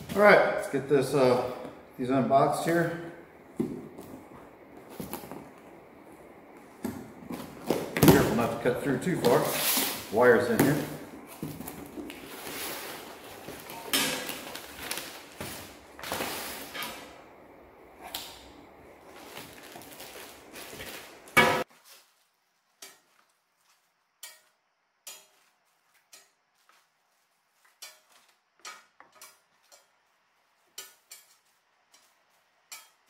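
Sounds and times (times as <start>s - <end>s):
plastic bag rustling: 3.5s - 17.2s, 18.6s - 23.7s.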